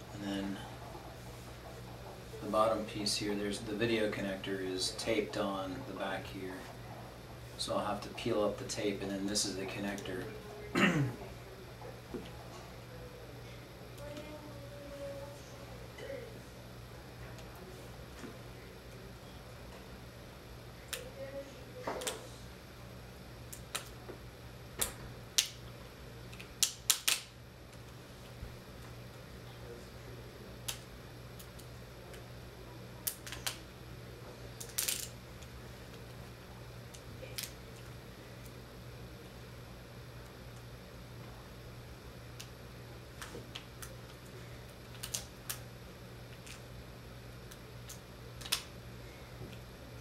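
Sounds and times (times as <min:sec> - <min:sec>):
faint steady hum: 0:00.0 - 0:50.0
adhesive tape peeling crackles: 0:44.9 - 0:45.6.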